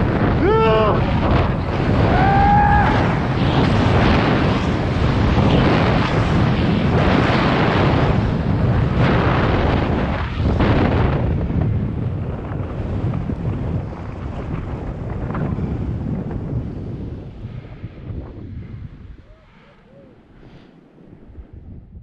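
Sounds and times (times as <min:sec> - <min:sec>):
wind rushing over microphone: 0:00.0 - 0:22.0
boards hissing through snow: 0:01.3 - 0:09.6.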